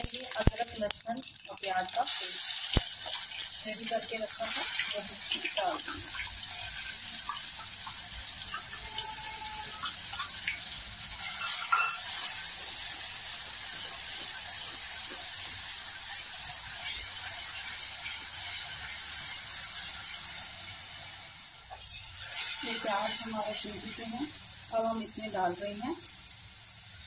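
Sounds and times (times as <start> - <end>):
paste sizzling in hot oil: 0.0 - 27.0
steel spoon scraping a pan: 4.4 - 13.0, 21.7 - 24.2.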